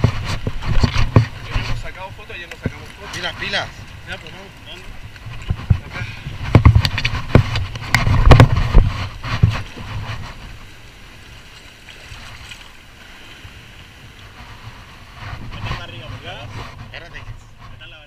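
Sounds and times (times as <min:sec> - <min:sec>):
surf: 0:00.0 - 0:18.0
wind: 0:00.0 - 0:18.0
knocks on microphone: 0:05.4 - 0:09.7.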